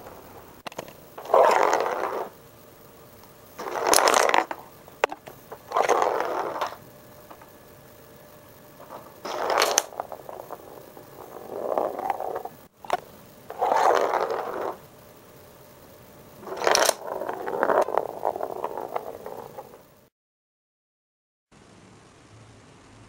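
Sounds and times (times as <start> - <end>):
wooden figures sliding and rattling: 0.0 - 2.4, 3.6 - 7.5, 8.8 - 14.8, 16.4 - 19.8
wooden figures clattering on floor: 3.6 - 7.5, 8.8 - 12.6, 16.4 - 19.8.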